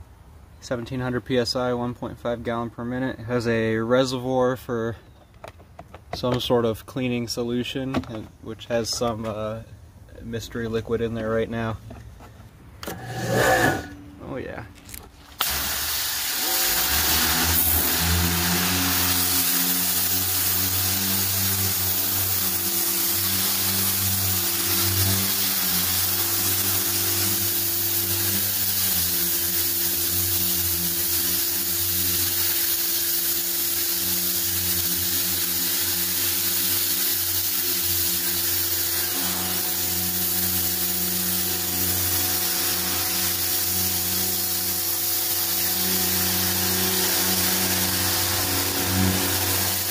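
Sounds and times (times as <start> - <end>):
water jet hissing on door: 12.8 - 13.9, 15.4 - 49.9
pressure washer motor hum: 12.8 - 49.9.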